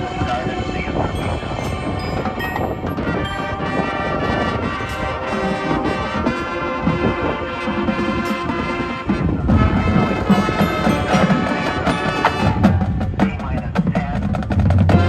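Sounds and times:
brass chords: 1.2 - 13.2
percussion hits: 1.6 - 7.0, 9.5 - 13.6.

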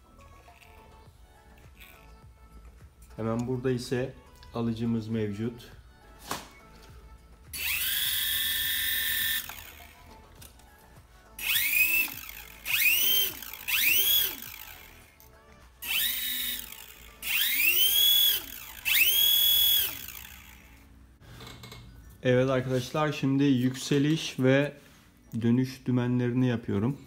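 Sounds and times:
small electric motor whining: 0.1 - 2.2, 7.5 - 10.2, 11.4 - 15.2, 15.8 - 20.9.

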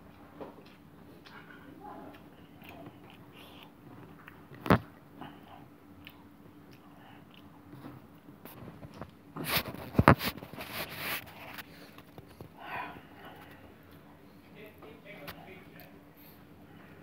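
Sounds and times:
person chewing food: 0.0 - 14.4
wet mouth clicks: 0.1 - 7.6.

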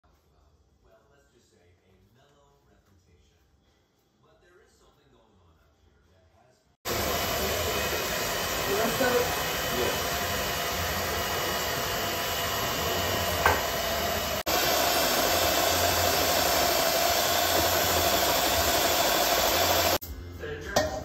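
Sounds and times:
electric hand mixer whirring: 6.9 - 20.0.

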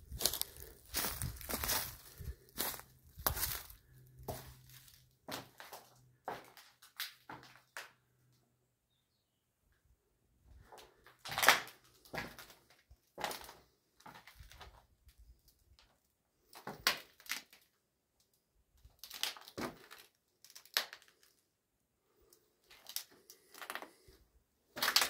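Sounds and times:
footsteps crunching over rubble: 0.0 - 7.8, 10.7 - 14.8.

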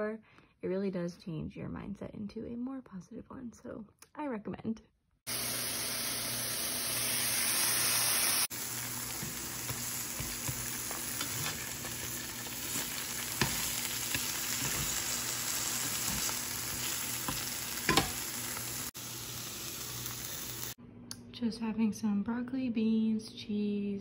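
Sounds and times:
food sizzling in a pan: 5.3 - 20.8
spatula taps and scrapes: 12.7 - 15.2.

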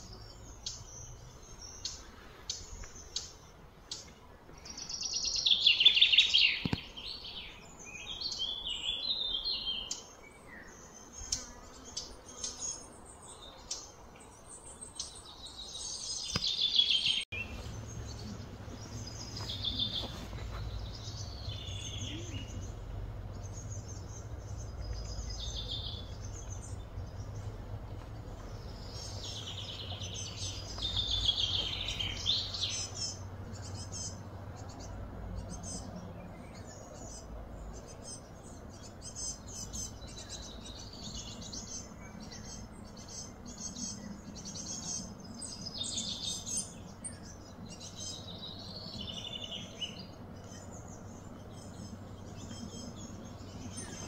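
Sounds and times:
wild birds chirping: 0.0 - 54.0
low background rumble: 17.3 - 54.0.

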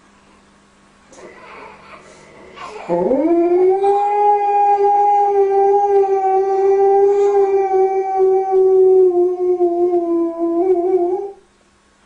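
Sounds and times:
dog howling: 1.2 - 11.4.

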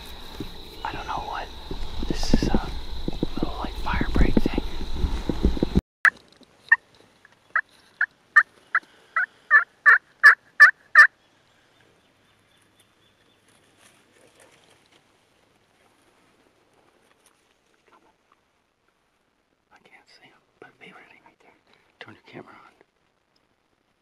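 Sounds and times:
person whispering: 0.8 - 4.7, 19.7 - 22.8.

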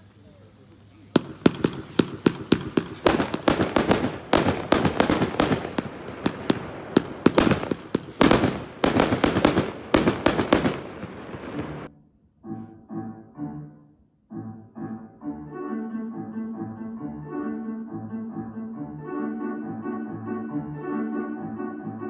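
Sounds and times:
fireworks cracking and banging: 1.1 - 11.9
fireworks crackling: 1.1 - 11.9.

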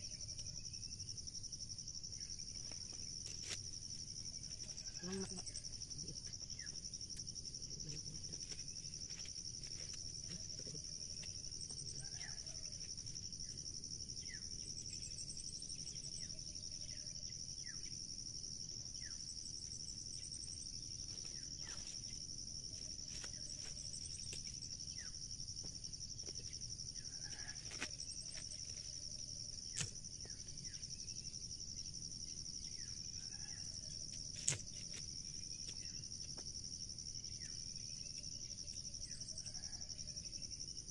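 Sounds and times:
insects chirring: 0.0 - 40.9
pulsing insect chirr: 0.0 - 40.9
corn husks being stripped: 34.4 - 35.0.

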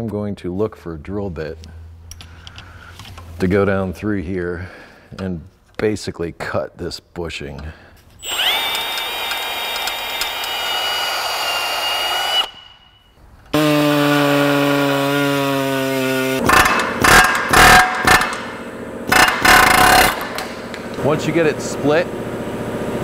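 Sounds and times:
cordless drill boring: 8.2 - 12.8, 13.6 - 18.4, 19.1 - 20.3
pneumatic tool stuttering: 8.2 - 12.9, 13.5 - 20.8.

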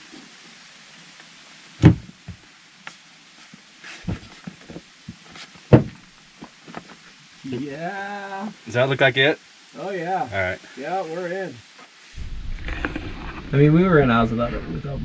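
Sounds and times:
knocks and thumps of heater unit: 1.8 - 2.4, 4.1 - 6.0.

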